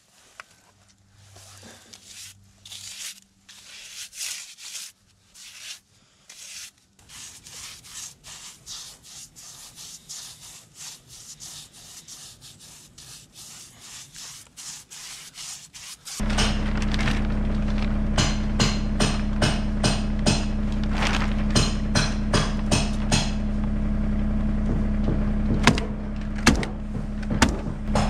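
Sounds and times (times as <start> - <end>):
paintbrush scrubbing: 1.2 - 16.3
steady sound with low hum: 16.1 - 28.0.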